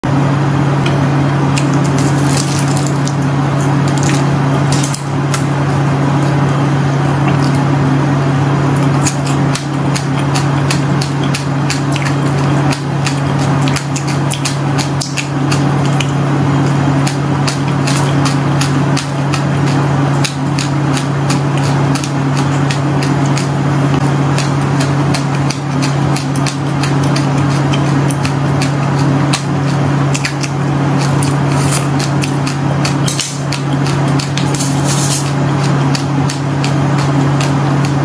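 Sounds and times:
hard candy crunching: 1.5s - 5.5s.

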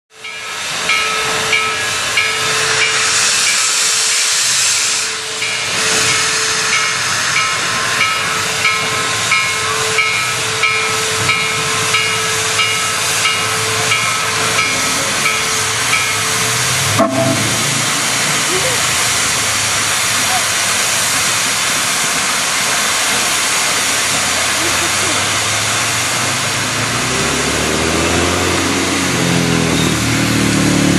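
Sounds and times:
steam hissing from locomotive: 0.2s - 30.9s
short ringing tone: 17.0s - 17.6s.

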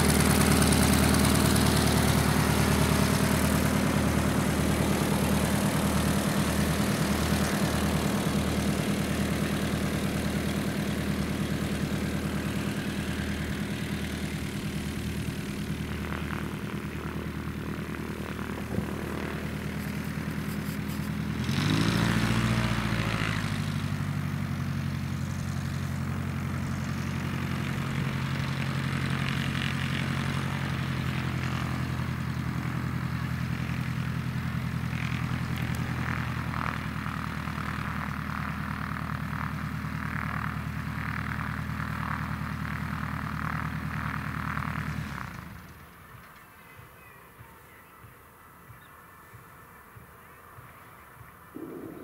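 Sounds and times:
propeller aircraft engine idling: 0.0s - 47.8s, 51.5s - 52.0s
engine throttle surge: 51.6s - 52.0s.

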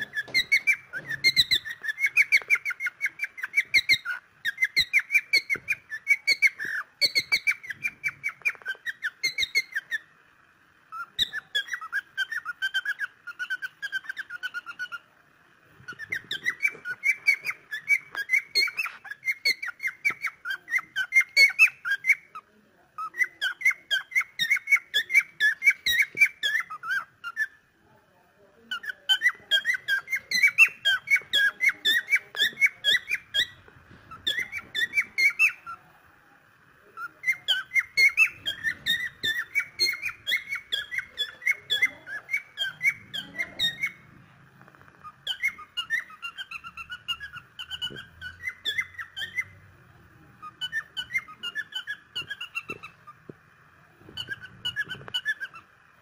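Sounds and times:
cockatiel chirping: 0.0s - 10.1s, 10.9s - 15.1s, 15.8s - 27.7s, 28.6s - 35.9s, 36.8s - 53.4s, 54.0s - 55.7s.

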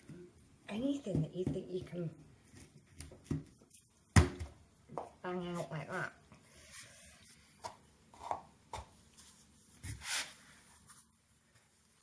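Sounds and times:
brushing scrape: 9.2s - 11.1s.

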